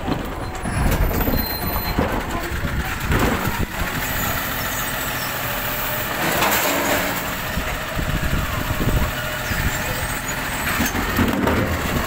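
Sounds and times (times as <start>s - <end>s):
hydraulic arm lifting bin: 0.0s - 12.0s
truck idling: 0.0s - 12.0s.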